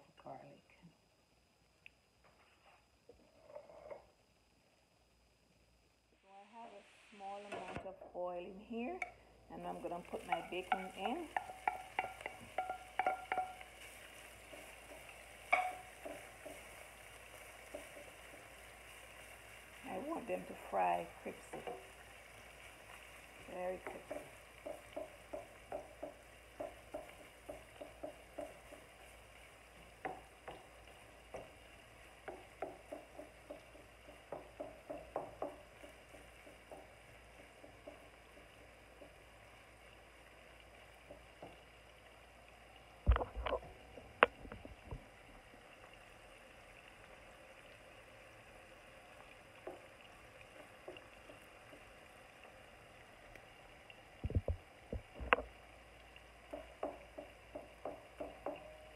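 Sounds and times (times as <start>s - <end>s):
bacon sizzling in a skillet: 8.3s - 53.8s, 54.4s - 58.9s
wooden spatula scraping a pan: 9.7s - 34.6s.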